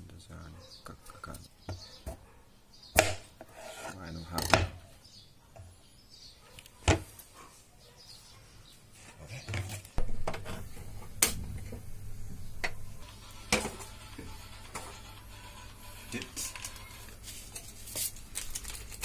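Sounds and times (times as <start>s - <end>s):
knife on plastic cutting board: 3.4s - 4.0s.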